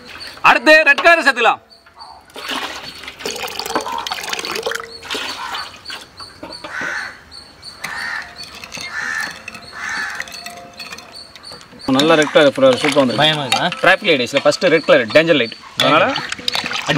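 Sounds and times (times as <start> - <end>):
spoon stirring milk in glass bowl: 7.8 - 14.0.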